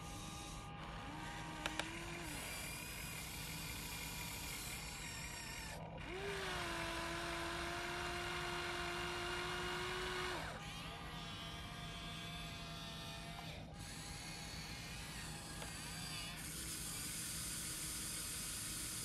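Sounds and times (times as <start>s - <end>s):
electric motor whine: 0.0s - 19.0s
sharp clicks: 1.6s - 2.0s.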